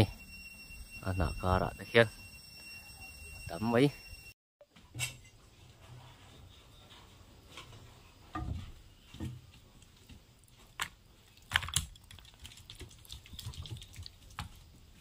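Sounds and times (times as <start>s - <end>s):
food pieces tapping and thudding: 10.7s - 14.6s.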